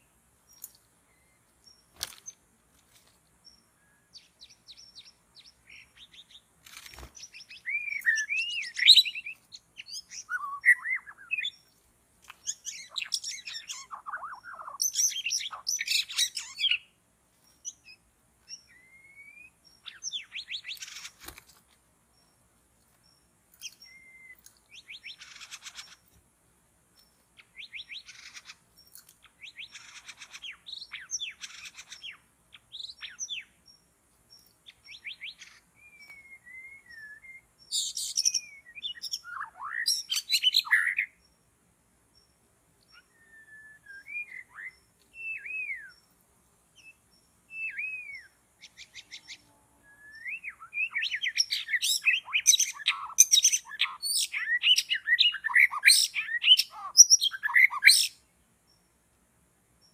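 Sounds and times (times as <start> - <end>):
bird whistled song: 3.5 - 11.7, 12.4 - 17.0, 17.6 - 21.2, 23.6 - 26.0, 27.4 - 28.6, 29.3 - 33.6, 34.6 - 41.2, 42.9 - 46.1, 46.8 - 58.3
fast chirping trills: 12.4 - 16.9, 23.0 - 26.1, 50.2 - 58.2.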